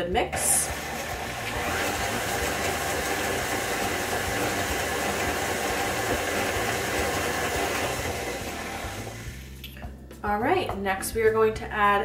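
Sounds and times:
electric stand mixer running: 0.4 - 9.6.

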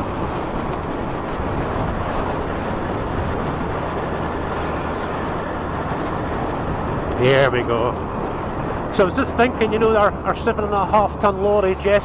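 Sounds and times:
wind and road noise: 0.0 - 12.0.

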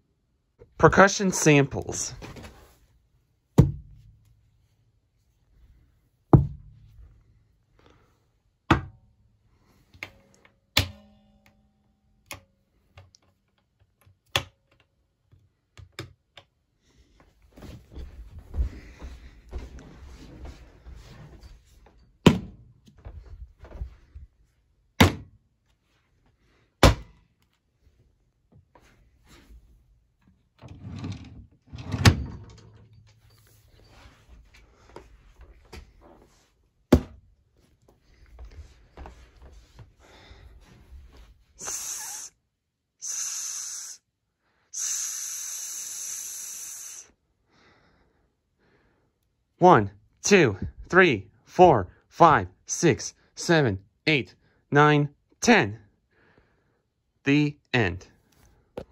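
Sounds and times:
rustling and handling noise: 1.9 - 3.3, 32.7 - 36.8, 37.4 - 41.6
knocks on household objects: 6.4 - 6.7
soft rustling: 37.6 - 41.6
hissing: 43.0 - 44.0, 44.8 - 47.1.

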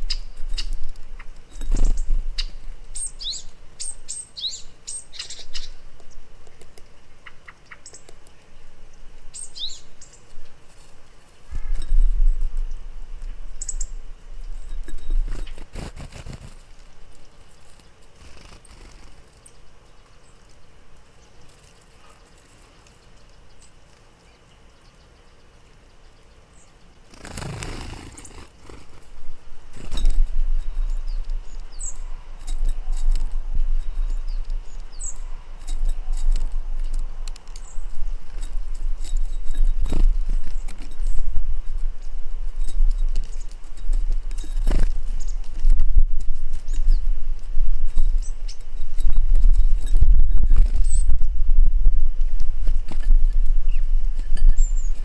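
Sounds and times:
small bird chirping: 0.0 - 55.0
wind gusts on microphone: 29.1 - 55.0.

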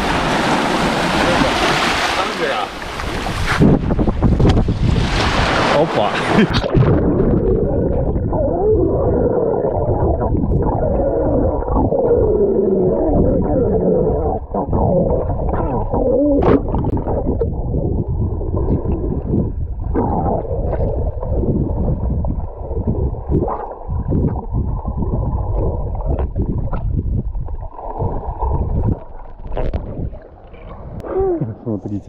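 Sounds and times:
muffled underwater rushing water: 0.0 - 32.0
bubble gurgles: 6.3 - 31.8.

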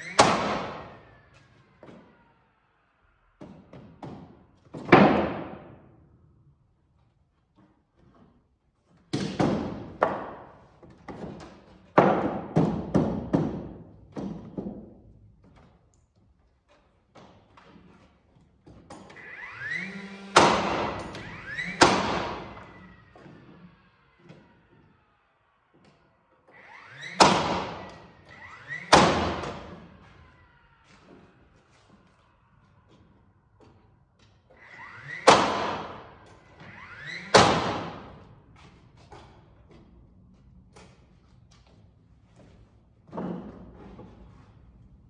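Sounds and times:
nailer firing bang: 0.0 - 1.0, 4.8 - 5.8, 9.1 - 10.5, 19.1 - 22.9, 26.7 - 30.1, 34.8 - 38.2
knocks on wooden floor truss: 3.5 - 5.8, 9.1 - 15.0, 20.3 - 22.7
nailer rising whine: 19.0 - 39.2.

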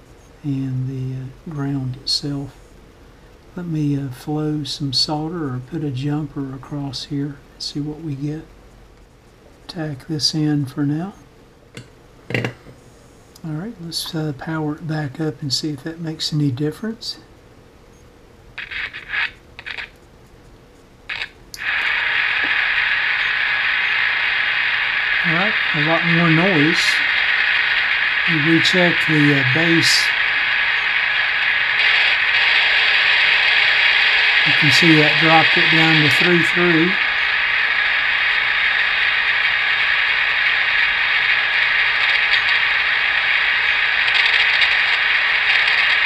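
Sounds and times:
radio static hiss: 0.0 - 46.0
faint radio crackles: 17.9 - 46.0.

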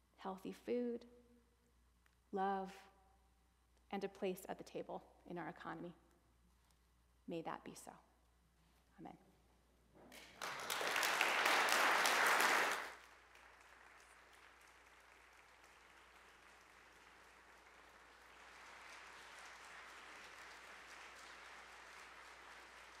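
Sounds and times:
congregation applauding: 10.1 - 23.0.

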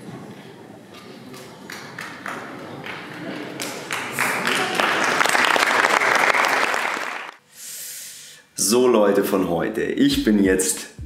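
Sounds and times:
audience applauding: 1.4 - 7.4.

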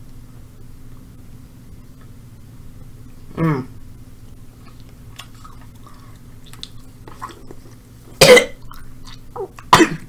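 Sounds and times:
person coughing hard: 8.2 - 8.6, 9.7 - 10.0.

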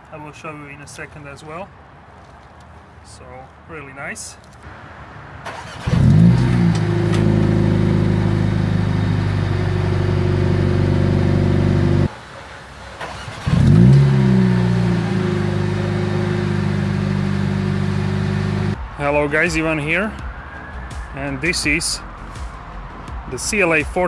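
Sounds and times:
car engine starting and idling: 5.4 - 12.1, 12.9 - 18.8.

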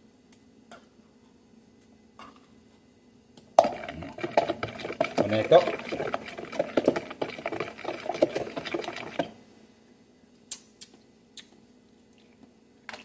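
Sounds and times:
spoon scraping plastic tub: 3.6 - 9.4.

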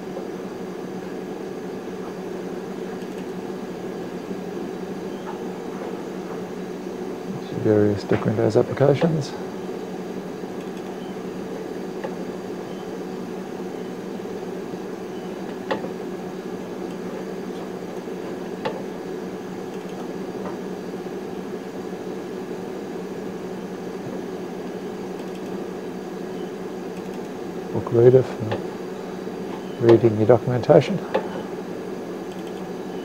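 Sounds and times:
computer fans humming: 0.0 - 33.0
mouse clicks: 10.6 - 11.0.

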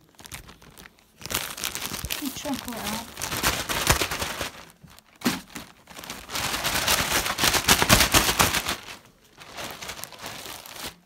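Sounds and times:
packaging tearing and crinkling: 0.0 - 11.0.

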